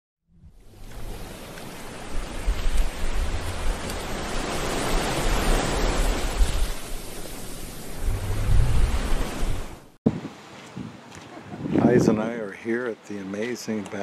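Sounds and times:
ocean surf washing onto beach: 0:00.6 - 0:10.8.

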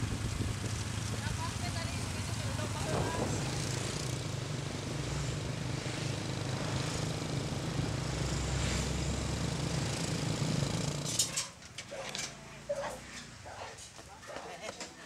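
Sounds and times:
rushing air and road noise: 0:00.0 - 0:11.1
small motorcycle engine running: 0:00.0 - 0:11.3.

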